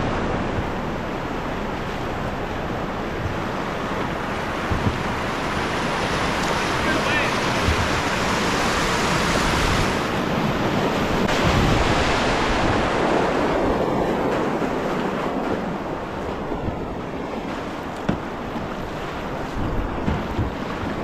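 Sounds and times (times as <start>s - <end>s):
river rapids rushing: 0.0s - 21.0s
wind buffeting microphone: 0.0s - 21.0s
short knock: 18.0s - 18.3s.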